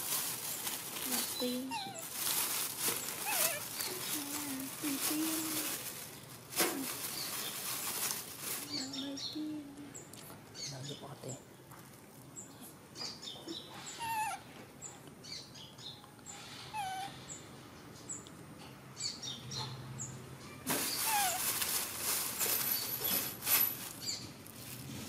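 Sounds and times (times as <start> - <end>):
loud rustling: 0.0 - 9.0, 20.7 - 25.0
small birds chirping: 0.2 - 23.3, 23.9 - 24.4
monkey squeaking: 1.4 - 2.0, 3.2 - 4.0, 20.9 - 21.4.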